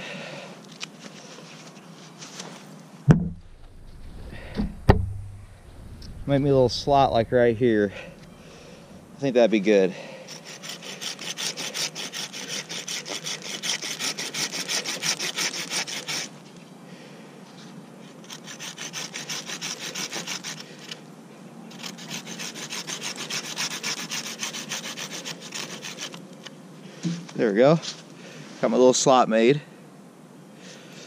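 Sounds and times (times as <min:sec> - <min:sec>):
pull saw cutting wood: 0:10.3 - 0:16.4, 0:18.2 - 0:21.0, 0:21.7 - 0:26.2.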